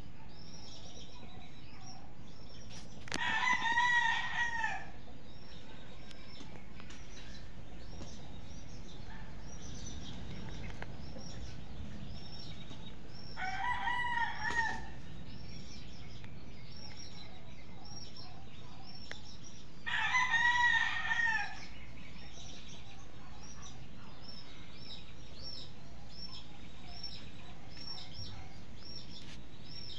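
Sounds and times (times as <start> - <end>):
rooster crowing: 3.2 - 5.0, 13.4 - 15.0, 19.9 - 21.7.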